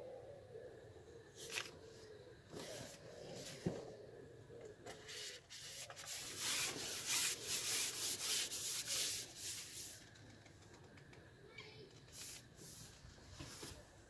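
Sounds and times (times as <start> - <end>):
fishing pole rubbing strokes: 5.0 - 10.0.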